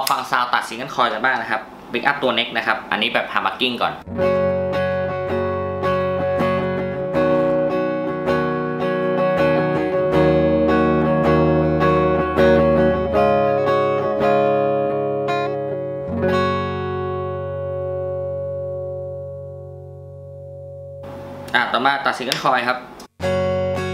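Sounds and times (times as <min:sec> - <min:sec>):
clean electric guitar: 0:04.0 - 0:21.7, 0:23.0 - 0:23.9.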